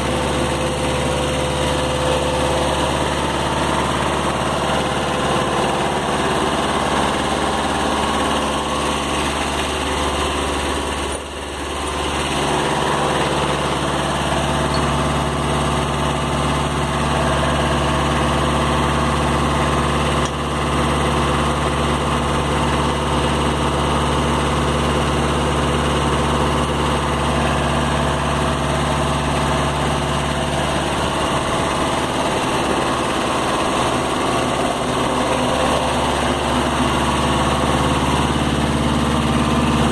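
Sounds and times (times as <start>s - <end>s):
tractor diesel engine idling: 0.0s - 39.9s.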